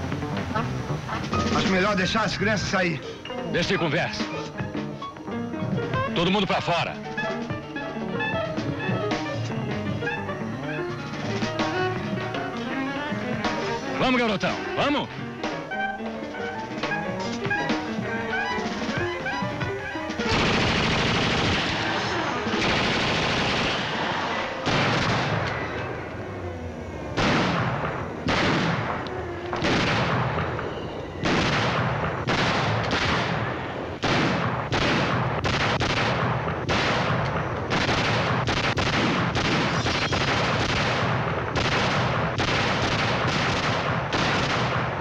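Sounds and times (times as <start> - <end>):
gunshots with ringing echo: 19.6 - 26.0, 27.1 - 45.0.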